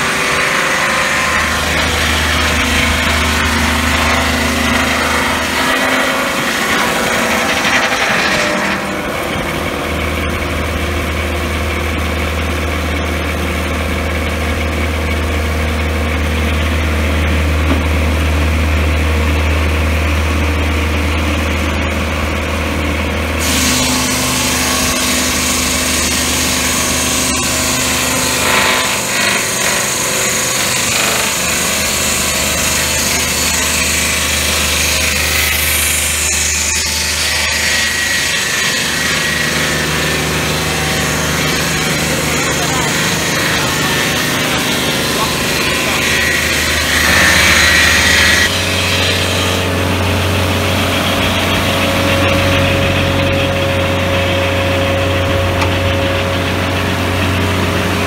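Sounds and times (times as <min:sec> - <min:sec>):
circular blade sawing log: 0:00.0 - 0:20.0, 0:23.3 - 0:58.0
sawmill engine drone: 0:00.0 - 0:58.0
saw blade spinning free: 0:23.4 - 0:49.7.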